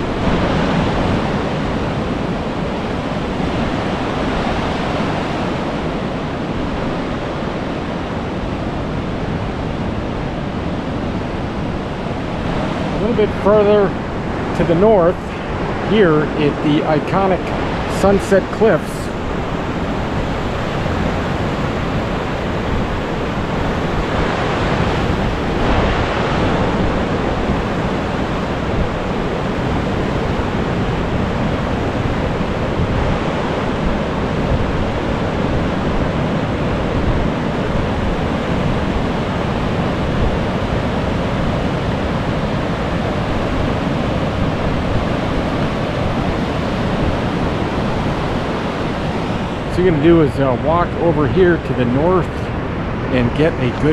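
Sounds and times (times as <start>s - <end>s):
surf breaking on rocks: 0.0s - 53.9s.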